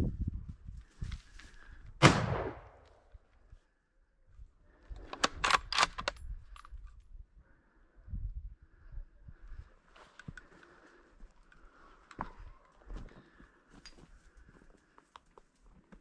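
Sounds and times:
gunshot: 2.0s - 2.8s.

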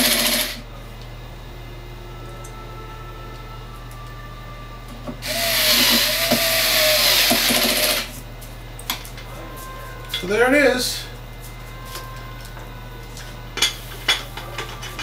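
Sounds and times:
drill motor whining: 0.0s - 0.6s, 5.2s - 8.2s
drill click: 5.2s - 8.1s.

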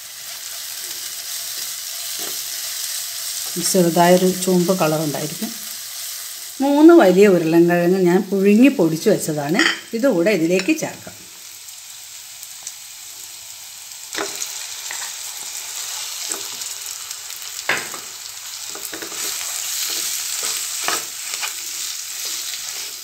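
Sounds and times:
masala sizzling in a pan: 0.0s - 23.0s
spatula scraping a pan: 18.7s - 23.0s.

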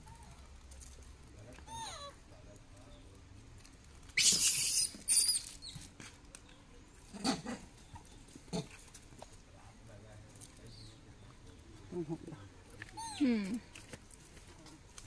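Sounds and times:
monkeys screaming: 4.2s - 5.8s.

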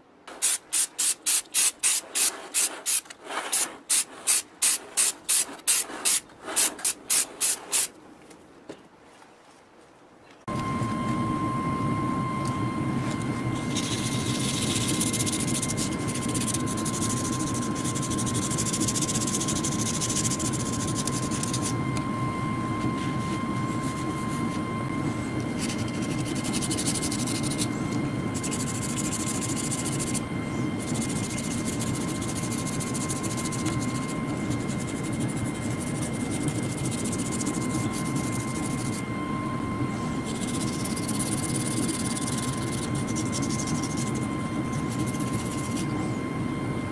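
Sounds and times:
sanding pad scratching: 0.3s - 7.9s, 13.5s - 21.8s, 22.9s - 24.6s, 25.5s - 30.2s, 30.8s - 39.0s, 40.2s - 45.9s
high steady whine: 10.5s - 46.9s
machine drone: 10.5s - 46.9s.

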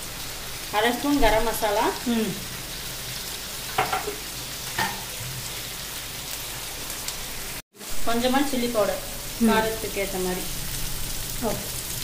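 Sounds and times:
sausage and onion sizzling in oil: 0.0s - 12.0s.

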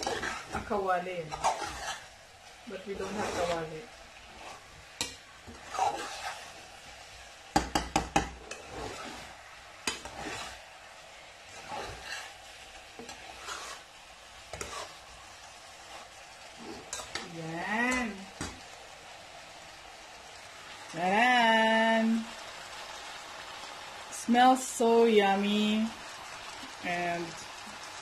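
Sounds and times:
spatula scraping a pot: 0.0s - 2.1s, 2.7s - 6.8s, 8.0s - 10.6s, 11.5s - 13.9s, 14.5s - 15.1s, 15.8s - 17.3s
soft sizzle: 0.0s - 28.0s.

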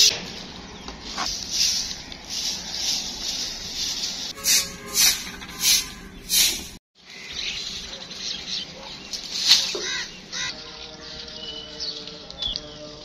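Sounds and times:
broom sweeping concrete floor: 1.0s - 6.8s, 9.1s - 10.0s.

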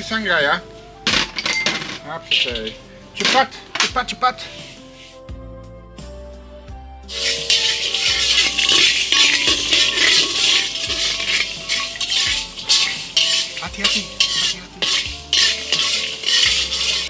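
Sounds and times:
utensil scraping strokes: 2.2s - 4.0s, 7.1s - 17.0s.

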